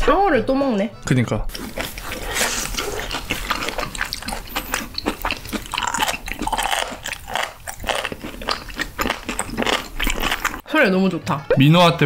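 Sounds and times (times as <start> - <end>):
crunchy chewing: 1.5 - 10.6.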